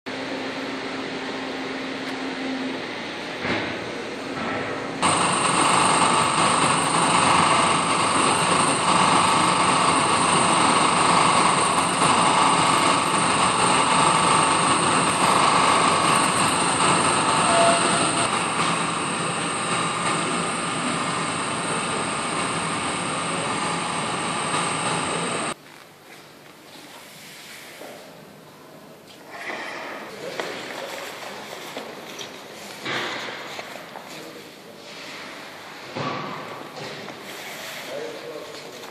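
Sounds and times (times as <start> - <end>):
machine running with high whine: 0.1 - 25.6.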